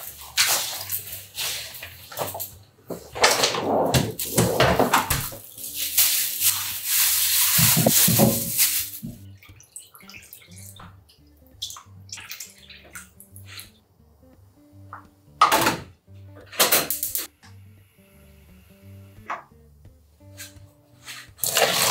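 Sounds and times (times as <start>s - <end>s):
soft background music: 0.0s - 21.9s
water pouring into a frying pan: 5.4s - 10.8s, 21.4s - 21.9s.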